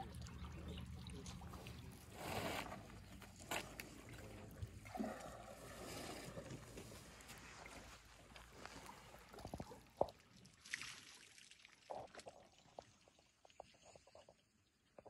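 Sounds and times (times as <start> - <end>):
small splashes: 0.0 - 13.2
water sloshing and trickling: 0.0 - 15.0.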